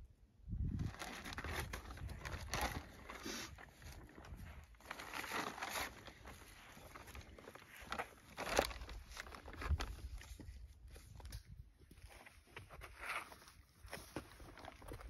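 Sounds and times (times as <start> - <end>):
plastic bag rustling and crinkling: 0.6 - 15.0.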